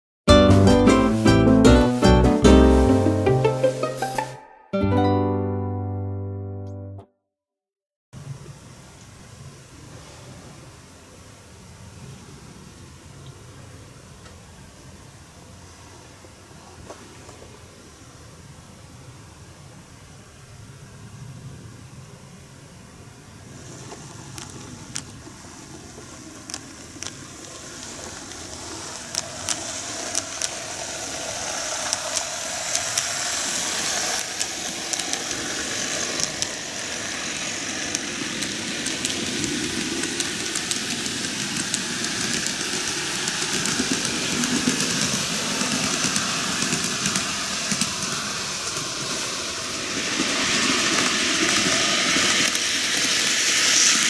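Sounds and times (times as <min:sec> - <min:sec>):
model trains running hum: 0:08.2 - 0:54.0
wheels clicking over rail joints: 0:23.5 - 0:54.0.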